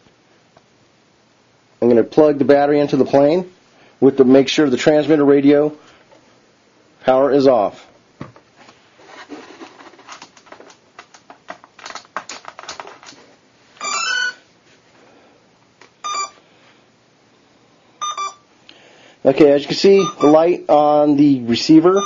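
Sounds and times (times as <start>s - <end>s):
wires rustling and clicking: 8.3s - 14.4s
electronic tones from motor: 16.0s - 16.4s, 18.0s - 18.4s
short beep: 16.0s - 16.4s, 18.0s - 18.4s, 20.0s - 20.4s.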